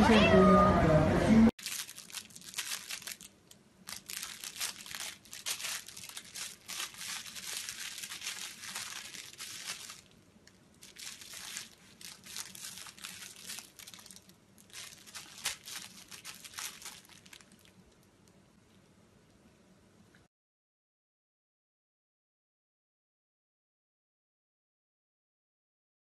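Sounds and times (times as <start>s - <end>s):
toy crinkling: 1.6s - 18.4s.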